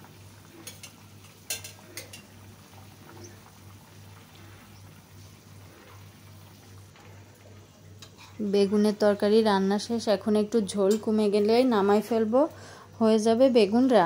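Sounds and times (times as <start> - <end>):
curry bubbling in a pan: 0.0 - 12.8
metal spatula clinking on pan: 0.6 - 2.3.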